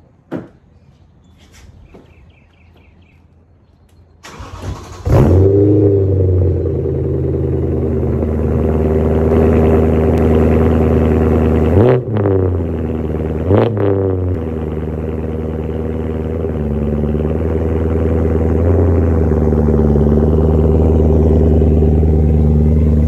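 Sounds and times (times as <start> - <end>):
car starter cranking: 4.2 - 5.4
engine throttle blips: 4.2 - 23.0
car engine idling: 4.3 - 11.8, 14.3 - 23.0.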